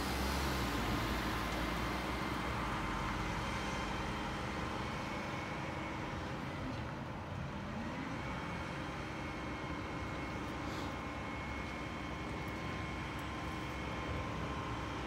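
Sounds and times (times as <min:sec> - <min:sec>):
distant garbage truck running: 0:00.0 - 0:15.0.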